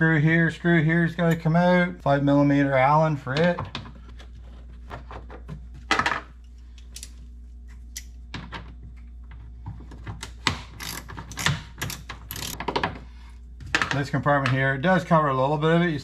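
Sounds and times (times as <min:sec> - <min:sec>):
ratchet clicking: 0:10.8 - 0:12.6.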